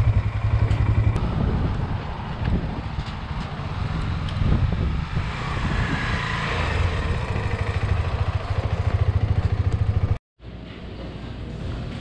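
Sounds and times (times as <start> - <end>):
motorcycle engine idling: 0.0 - 1.2, 6.8 - 10.2.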